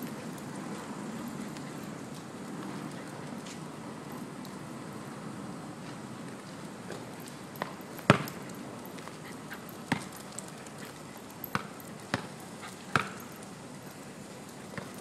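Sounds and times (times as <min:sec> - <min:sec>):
basketball bouncing on hard court: 0:07.6 - 0:08.4, 0:09.9 - 0:10.2, 0:11.5 - 0:13.2, 0:14.8 - 0:15.0.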